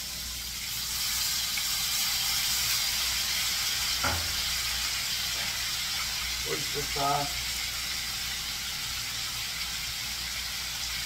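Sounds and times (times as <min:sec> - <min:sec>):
meat sizzling in a frying pan: 0:00.0 - 0:11.0
single short knock: 0:04.0 - 0:04.4.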